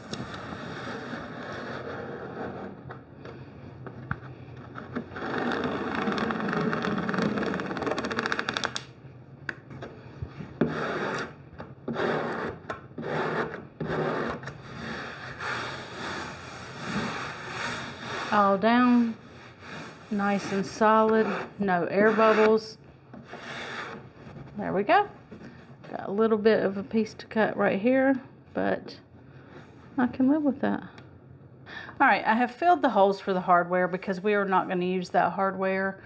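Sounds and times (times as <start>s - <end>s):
plastic scraper on wallpaper: 0.0s - 2.9s, 5.0s - 8.9s, 10.6s - 24.0s.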